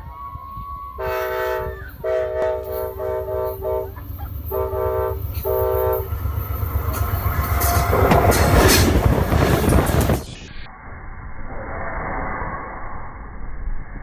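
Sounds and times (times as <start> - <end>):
train rumble: 0.0 - 10.5
train air horn blasts: 0.9 - 6.2, 7.4 - 8.9.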